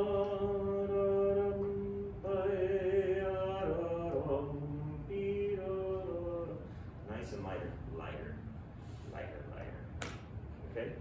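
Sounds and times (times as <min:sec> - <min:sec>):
person singing slow melody: 0:00.0 - 0:06.7.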